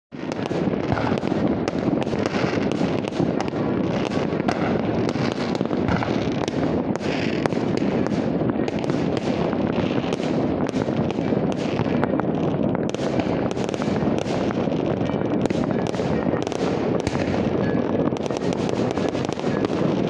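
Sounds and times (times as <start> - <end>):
sharp firecracker cracks: 0.1 - 10.9, 15.4 - 20.0
rumble of distant firework bangs: 0.1 - 20.0.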